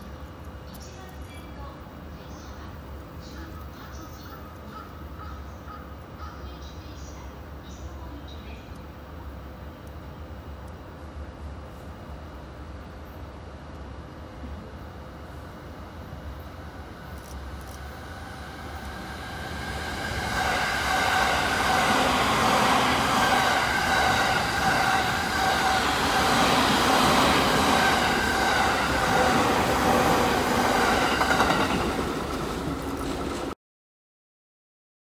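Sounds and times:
train whine: 11.6s - 33.6s
train wheels rumbling on rails: 16.8s - 33.6s.

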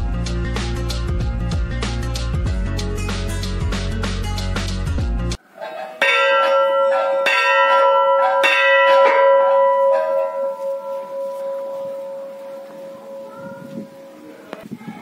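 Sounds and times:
background music: 0.0s - 5.4s
brass temple bell ringing: 6.0s - 14.4s.

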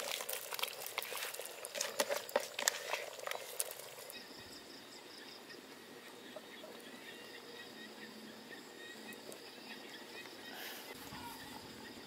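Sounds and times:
curry bubbling in a pot: 0.0s - 4.2s.

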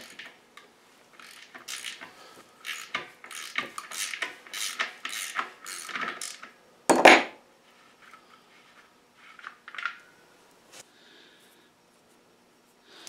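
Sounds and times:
wrench scraping metal: 1.2s - 6.5s.

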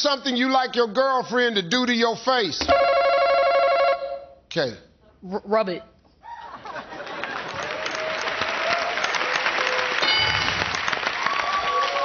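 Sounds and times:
studio audience applauding: 6.9s - 12.0s.

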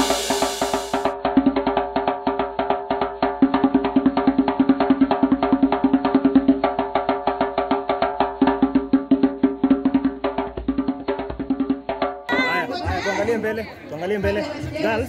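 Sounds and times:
upbeat music with struck notes: 0.0s - 1.5s.

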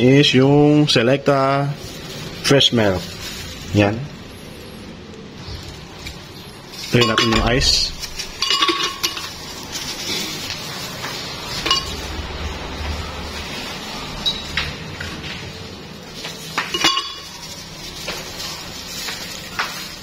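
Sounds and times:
ice cubes clinking in glass: 11.5s - 12.2s, 16.6s - 17.6s.

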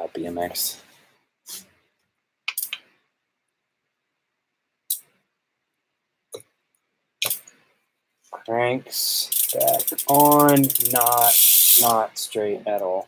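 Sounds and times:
metal clicks and clinks: 9.3s - 11.9s.

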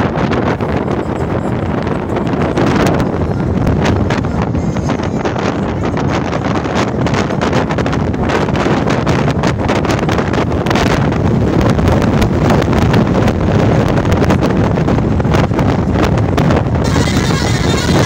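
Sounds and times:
road noise: 0.0s - 18.0s
wind buffeting microphone: 0.0s - 18.0s.

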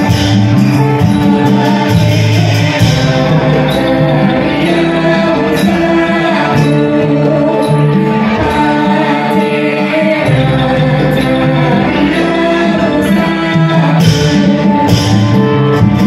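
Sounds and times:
amplified singing: 0.0s - 16.0s.

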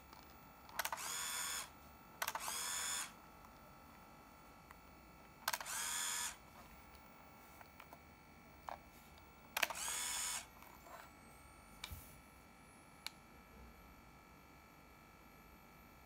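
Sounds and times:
camera motor whir: 0.1s - 3.2s, 5.4s - 8.8s, 9.5s - 11.2s
camera shutter click: 0.7s - 3.1s, 5.4s - 6.4s, 9.6s - 10.5s.

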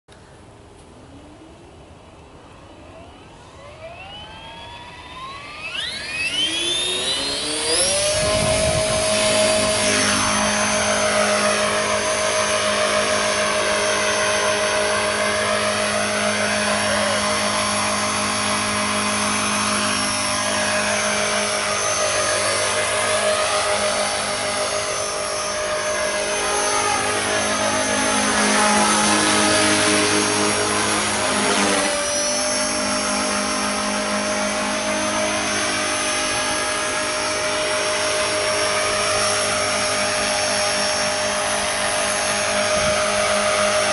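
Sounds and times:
electric motor and gears whining: 2.9s - 43.9s
rotor blades whirring: 2.9s - 43.9s.

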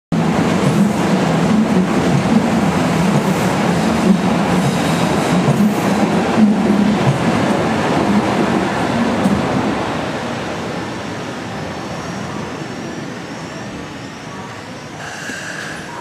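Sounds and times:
train rumbling into station: 0.1s - 16.0s.

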